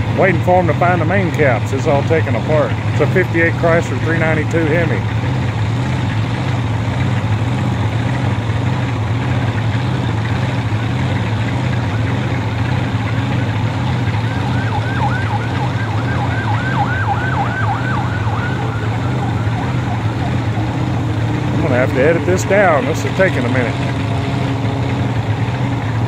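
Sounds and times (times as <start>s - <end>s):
low engine hum: 0.0s - 26.0s
siren yelping: 14.1s - 21.5s.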